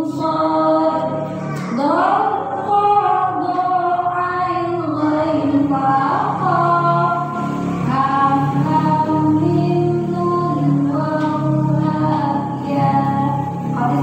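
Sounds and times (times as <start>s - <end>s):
woman singing into a microphone: 0.0s - 14.0s
women singing slow melody: 0.0s - 14.0s.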